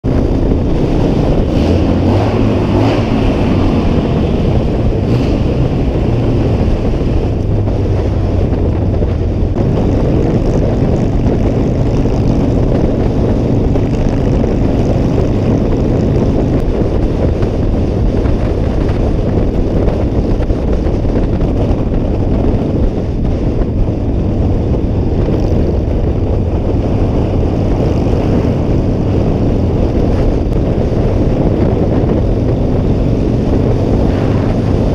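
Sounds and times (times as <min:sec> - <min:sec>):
motorcycle engine cruising: 0:00.0 - 0:34.9
wind rushing over microphone: 0:00.0 - 0:34.9.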